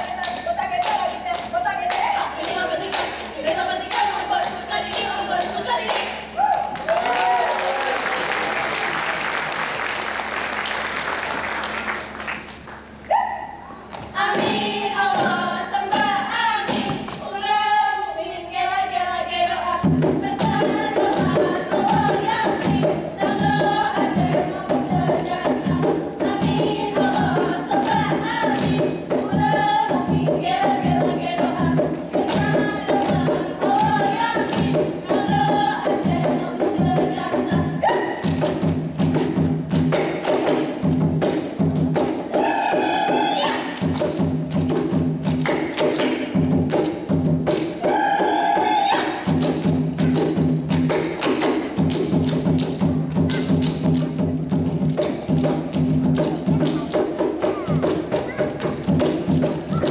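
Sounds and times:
fast rhythmic clapping and slapping: 0.0 - 13.0, 20.3 - 42.3, 43.7 - 47.8, 49.2 - 59.9
applause: 5.9 - 12.9
group singing in unison: 14.2 - 38.3, 42.3 - 43.8, 47.8 - 49.4.

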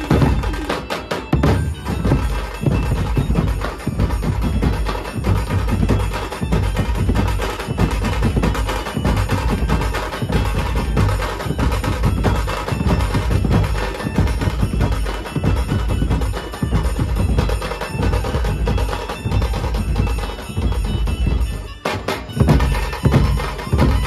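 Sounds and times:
drum band playing fast rhythm: 0.0 - 24.0.

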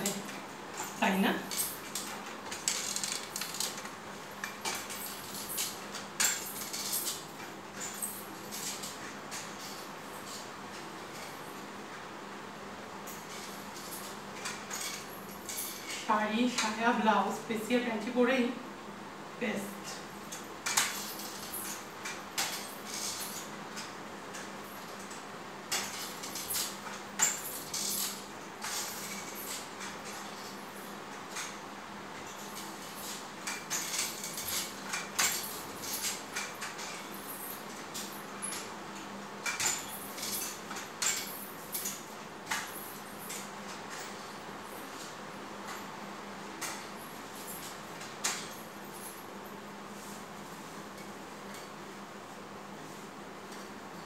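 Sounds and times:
crutches tapping on tiled floor: 0.0 - 9.5.

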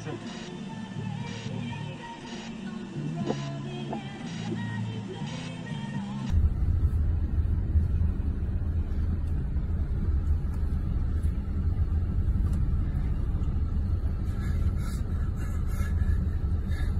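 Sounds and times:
road noise: 0.0 - 16.9
vehicle engine rumble: 6.0 - 16.9.

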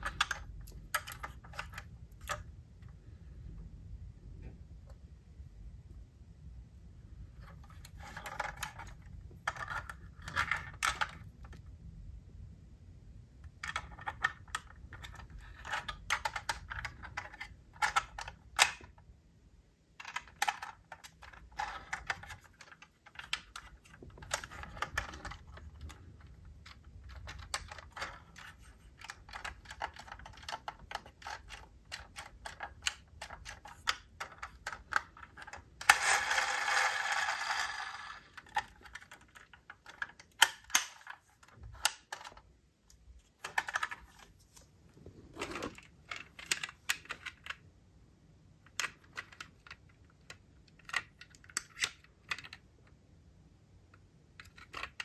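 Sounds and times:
toy cars clicking and clattering: 7.5 - 11.5, 13.6 - 19.0, 20.0 - 42.5, 54.4 - 55.0.

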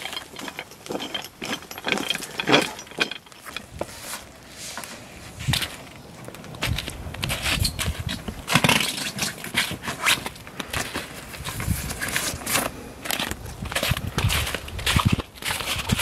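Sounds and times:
tent fabric rustling and scraping: 3.5 - 5.8, 6.6 - 16.0.

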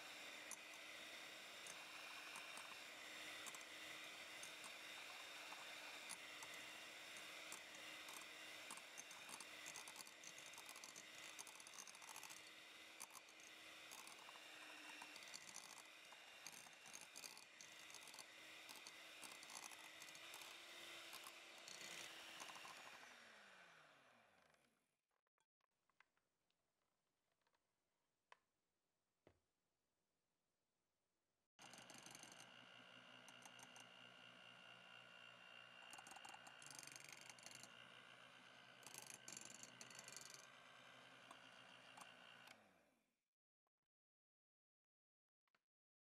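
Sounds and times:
electric hand mixer whine: 0.0 - 24.6, 31.6 - 42.7.

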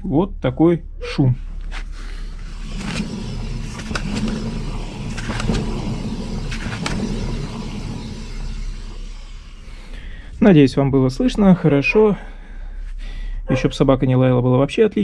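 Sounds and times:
wheel bearing rumbling: 2.2 - 10.4.

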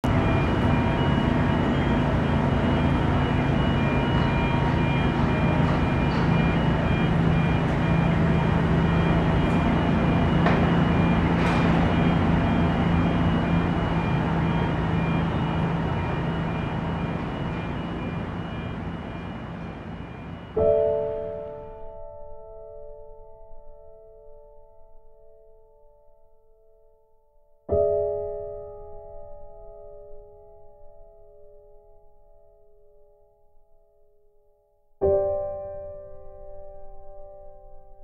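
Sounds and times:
traffic noise: 0.0 - 21.4.

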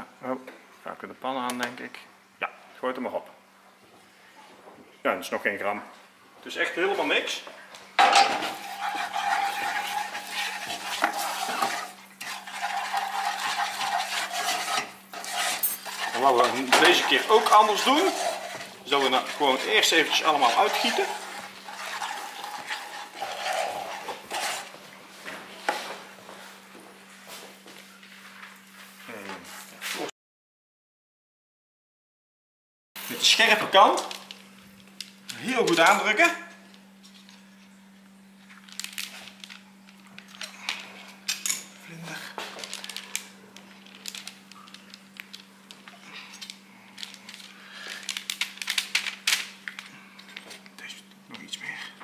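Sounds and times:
wooden spoon scraping frying pan: 8.0 - 24.9
baking paper rustling and crinkling: 8.3 - 26.6, 38.4 - 41.2, 42.0 - 50.8.

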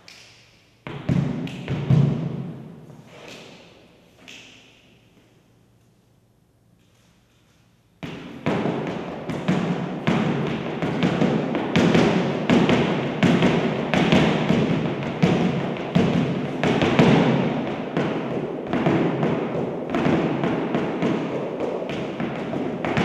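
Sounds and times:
dance shoes tapping on platform: 0.9 - 2.5, 8.0 - 23.0.

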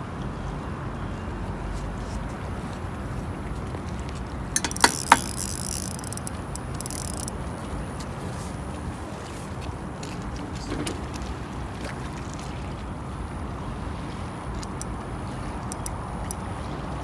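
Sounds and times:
water noise: 0.0 - 17.0
wind: 0.0 - 17.0
fishing reel sharp clacks: 4.5 - 7.5, 10.8 - 11.3, 14.5 - 16.5.

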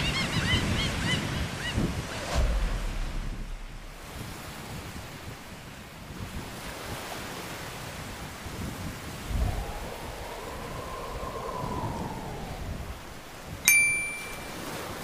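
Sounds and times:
wind: 0.0 - 15.0
sea surf washing on shore: 1.4 - 15.0
low boom: 1.9 - 5.6
faint rising and falling tone: 9.3 - 14.6.

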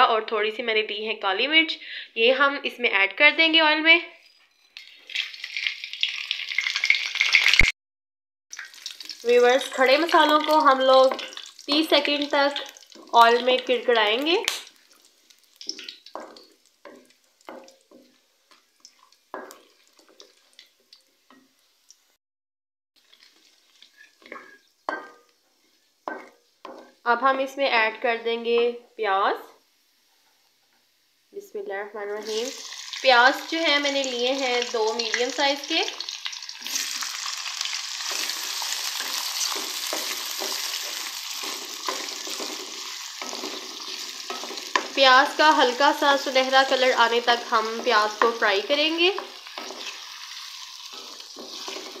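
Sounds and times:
oil sizzling: 4.3 - 7.7, 8.5 - 22.2, 23.0 - 28.8, 32.1 - 52.0
spoon scraping metal pan: 23.0 - 27.0, 38.0 - 52.0.

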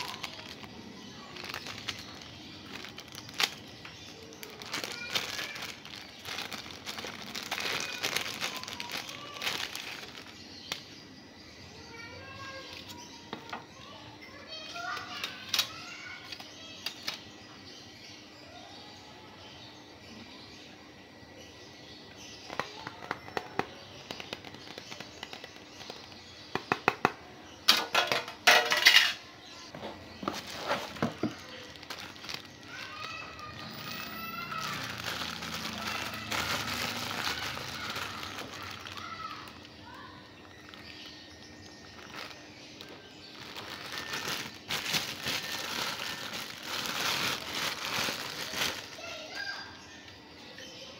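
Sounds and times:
plastic bag crinkling: 0.0 - 10.9, 22.5 - 26.6, 29.7 - 49.5
plastic packaging rustling: 0.0 - 10.9, 14.4 - 17.2, 22.5 - 26.7, 27.7 - 49.5.

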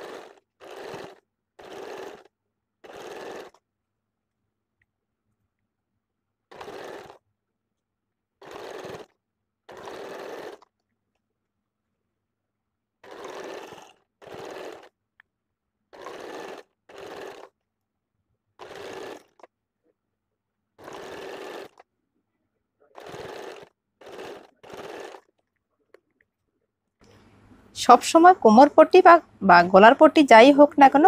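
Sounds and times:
sewing machine stitching: 0.0 - 3.6, 6.5 - 7.2, 8.4 - 10.7, 13.0 - 15.0, 15.9 - 17.6, 18.6 - 19.5, 20.8 - 21.8, 22.8 - 25.4.

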